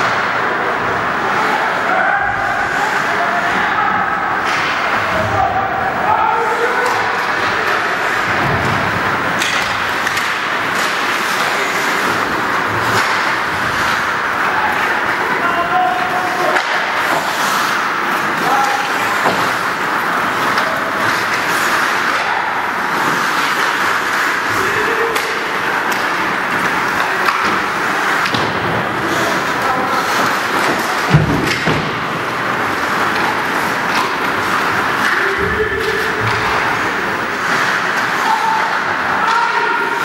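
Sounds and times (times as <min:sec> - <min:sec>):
arena noise: 0:00.0 - 0:40.0
hockey sticks and puck clicking: 0:04.3 - 0:05.2, 0:06.6 - 0:40.0.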